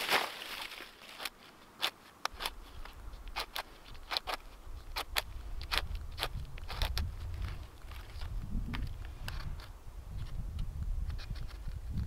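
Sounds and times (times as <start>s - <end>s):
knife scraping ferro rod: 1.2s - 7.4s, 11.0s - 12.0s.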